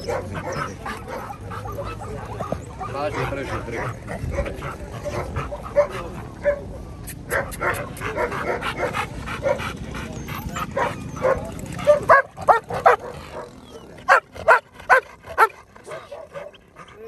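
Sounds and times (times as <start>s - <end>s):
dog barking: 0.0s - 1.4s, 7.3s - 9.6s, 10.8s - 16.6s.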